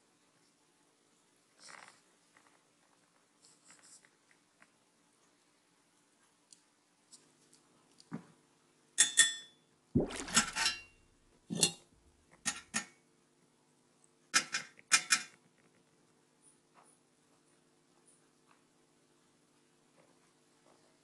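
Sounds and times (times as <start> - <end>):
faint steady hum: 0.0 - 21.0.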